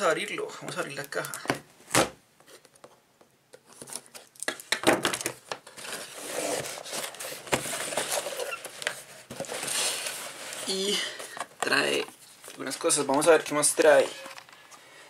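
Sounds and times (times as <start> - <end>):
cardboard rustling and scraping: 5.4 - 14.8.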